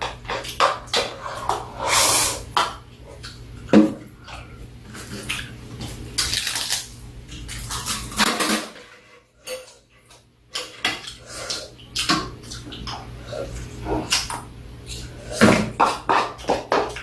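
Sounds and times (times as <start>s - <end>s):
utensils clinking against bowls: 7.4s - 17.0s.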